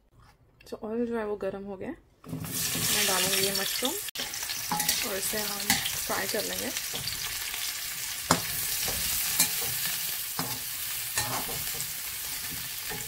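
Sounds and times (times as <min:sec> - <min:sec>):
mushrooms sizzling in oil: 0:02.4 - 0:13.0
spatula scraping a pan: 0:08.3 - 0:13.0.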